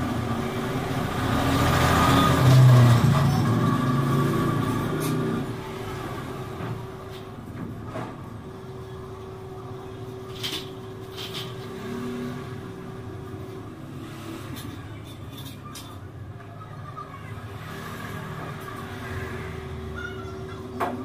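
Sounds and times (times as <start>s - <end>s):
bicycle parts clicking and knocking: 10.3s - 11.7s.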